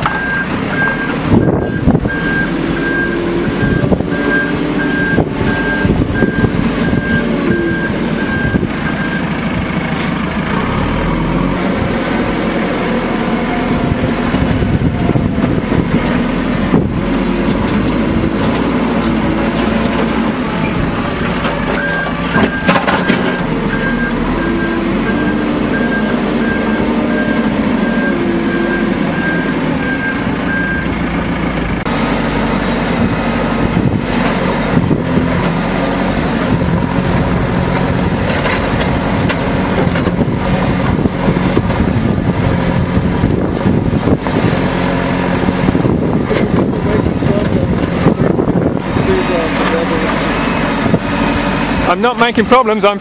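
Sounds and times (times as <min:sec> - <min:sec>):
diesel engine working under load: 0:00.0 - 0:53.0
reversing alarm beeping: 0:00.1 - 0:09.3, 0:21.8 - 0:31.0.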